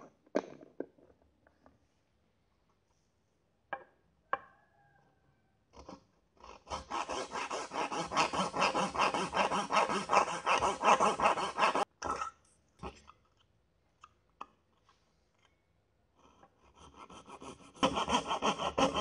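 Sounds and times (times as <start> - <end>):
hand saw cutting wood: 6.4 - 11.9, 16.8 - 19.0.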